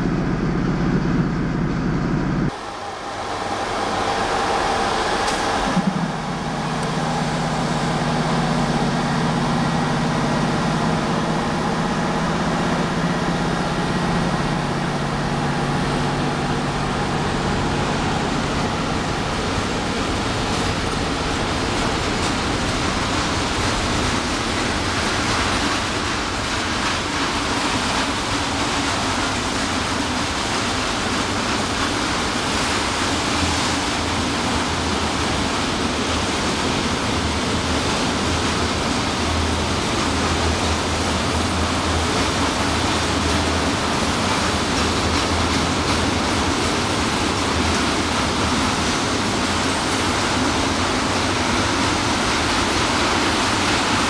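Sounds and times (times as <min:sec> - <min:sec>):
electric locomotive humming: 0:00.0 - 0:54.0
train wagons rolling on rails: 0:04.0 - 0:54.0.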